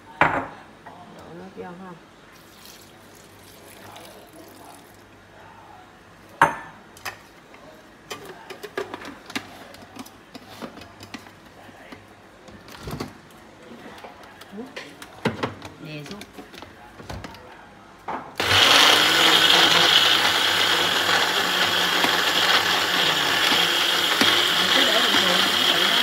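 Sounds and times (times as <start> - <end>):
blender jar knock: 18.4 - 26.0.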